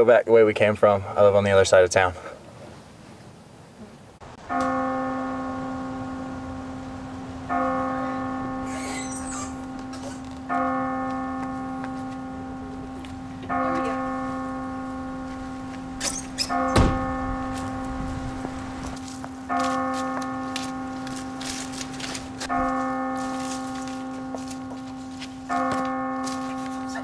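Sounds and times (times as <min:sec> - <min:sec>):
church bell tolling: 0:04.4 - 0:27.0.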